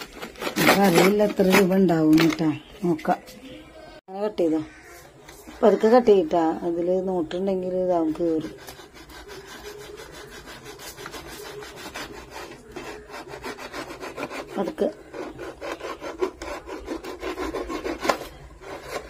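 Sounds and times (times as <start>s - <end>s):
knife sawing plastic: 0.0s - 1.8s, 8.0s - 19.0s.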